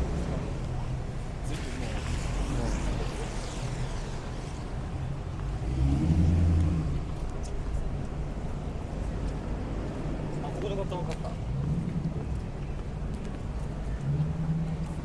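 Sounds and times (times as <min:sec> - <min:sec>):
vehicle engine passing close: 0:00.0 - 0:07.3
low hum of traffic: 0:00.0 - 0:15.0.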